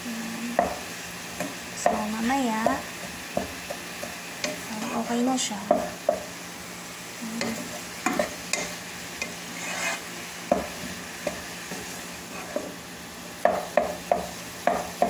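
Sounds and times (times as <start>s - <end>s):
meat sizzling: 0.0s - 15.0s
spatula knocking against pan: 1.4s - 4.6s, 5.6s - 6.3s, 10.5s - 11.4s, 13.4s - 15.0s
wooden spatula scraping a pan: 1.4s - 6.3s, 7.4s - 12.8s.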